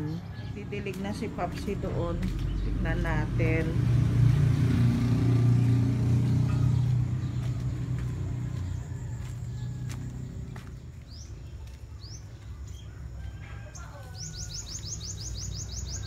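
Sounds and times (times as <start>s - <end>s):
vehicle engine hum: 0.0s - 13.2s
bird chirping: 13.7s - 16.0s.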